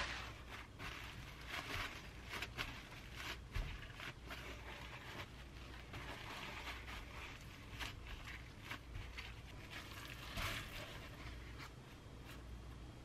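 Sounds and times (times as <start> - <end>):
paper towels rustling and crinkling: 0.0 - 12.6.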